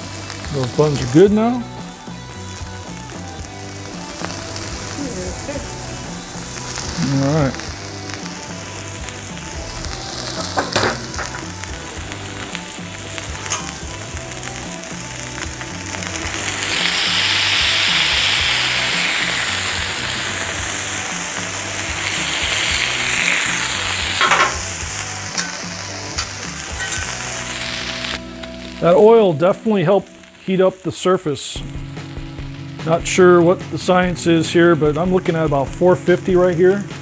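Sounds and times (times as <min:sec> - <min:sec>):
meat and onions sizzling on griddle: 0:00.0 - 0:37.0
metal spatula clicking on griddle: 0:13.4 - 0:13.8, 0:24.2 - 0:24.7, 0:25.3 - 0:25.6.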